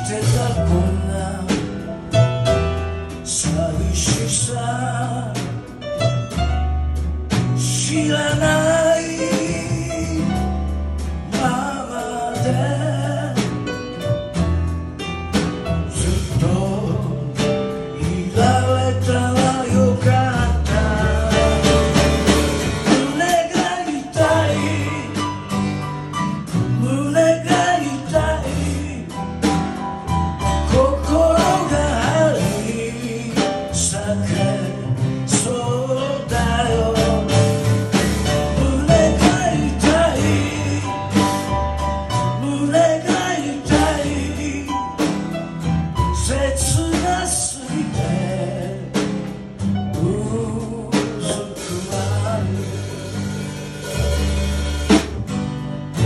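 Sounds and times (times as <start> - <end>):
man singing: 0.0 - 6.4, 7.4 - 14.0, 15.7 - 25.8, 26.5 - 29.7, 30.4 - 54.3
double bass notes: 0.0 - 56.0
drum kit: 0.0 - 56.0
acoustic guitar strumming: 17.9 - 29.8, 48.5 - 56.0.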